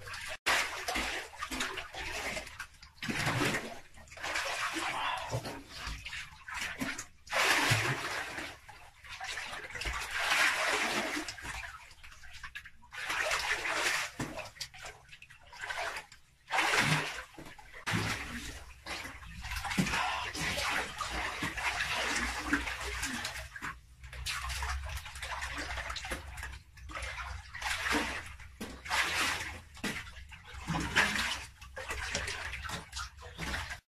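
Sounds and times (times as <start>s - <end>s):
water splashing in a pool: 0.0s - 33.9s.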